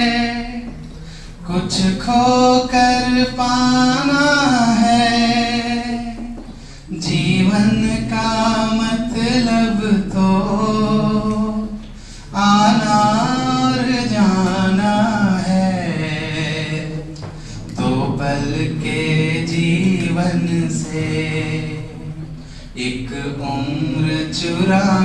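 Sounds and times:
man singing unaccompanied: 0.0 - 0.8, 1.4 - 25.0
singer breathing: 0.9 - 1.4, 6.5 - 6.9, 11.9 - 12.4, 17.2 - 17.7, 22.3 - 22.8.

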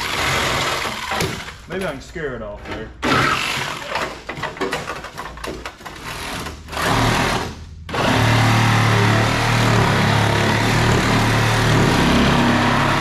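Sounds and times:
power tool cutting steel: 8.0 - 13.0.

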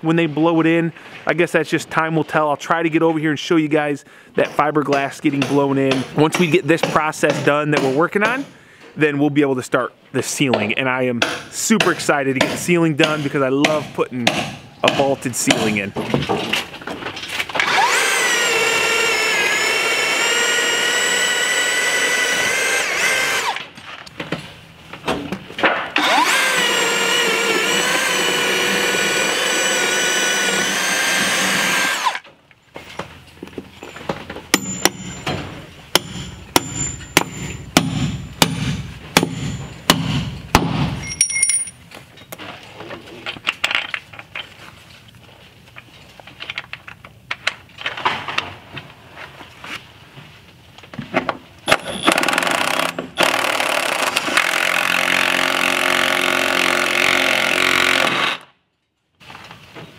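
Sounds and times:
cordless drill boring through wood: 17.6 - 23.6, 26.0 - 32.2, 51.8 - 58.5.

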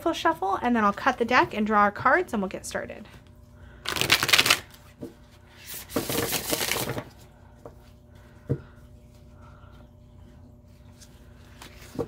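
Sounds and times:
cards being riffle-shuffled: 3.8 - 7.2.

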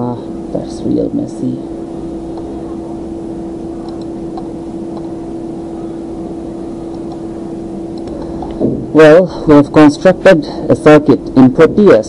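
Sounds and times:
steady electrical hum: 0.0 - 12.0.

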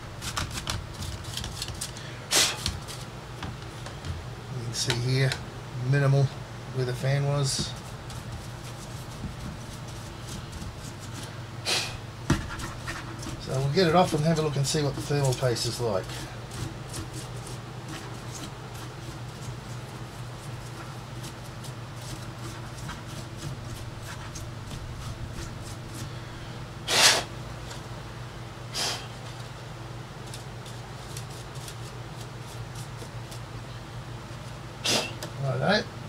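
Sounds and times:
steady low hum: 0.0 - 36.0
rustle of handling: 7.0 - 11.5, 12.4 - 26.7.

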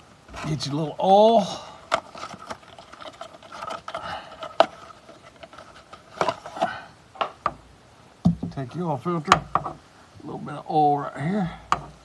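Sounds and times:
faint steady hum: 0.0 - 12.0
hands handling oil filter: 0.3 - 7.7.

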